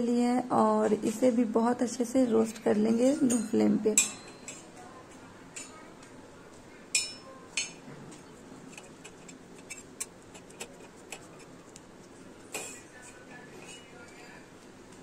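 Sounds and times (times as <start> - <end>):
clinks and ticks on pan: 3.3 - 4.7, 6.9 - 7.8.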